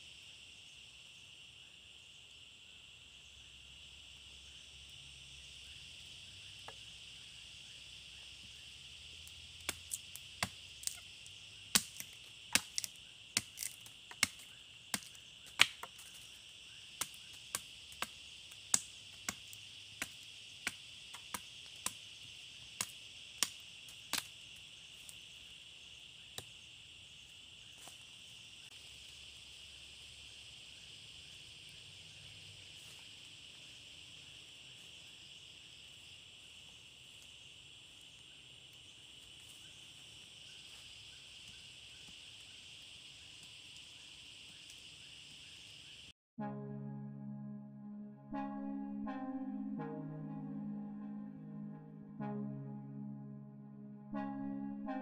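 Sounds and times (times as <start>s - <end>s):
insects buzzing: 0.0s - 46.1s
machete chopping wood: 11.8s - 16.1s.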